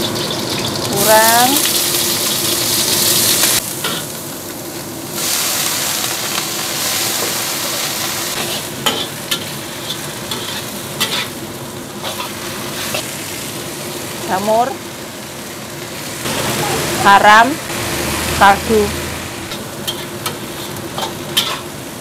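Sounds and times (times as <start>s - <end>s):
garlic sizzling in oil: 0.0s - 22.0s
metal spatula scraping wok: 8.0s - 11.4s, 16.3s - 21.7s.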